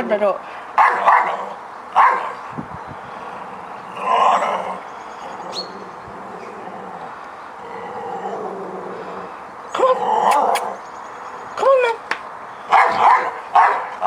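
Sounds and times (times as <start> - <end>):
dog barking: 0.8 - 1.4, 2.0 - 2.4, 12.7 - 14.0.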